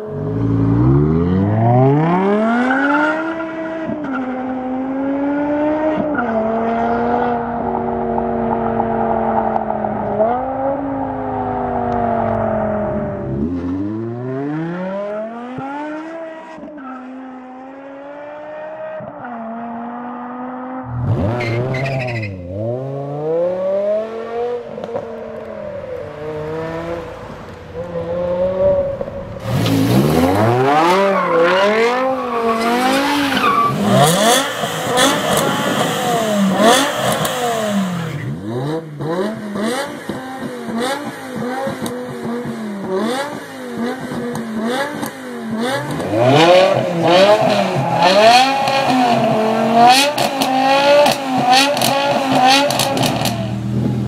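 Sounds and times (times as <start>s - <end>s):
car engines accelerating: 0.0s - 54.0s
parked car engine revving: 19.6s - 54.0s.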